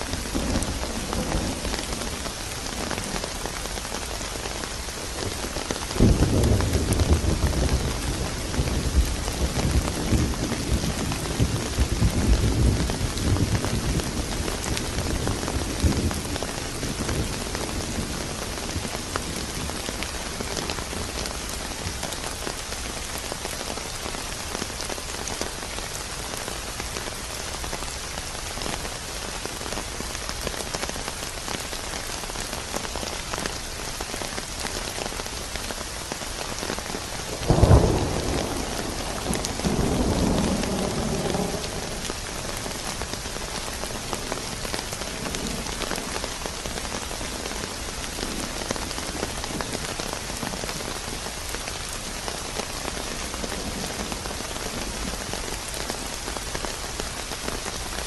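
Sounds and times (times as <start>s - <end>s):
heavy rain: 0.0s - 58.0s
thunder rumbling: 6.0s - 21.2s, 37.0s - 50.8s.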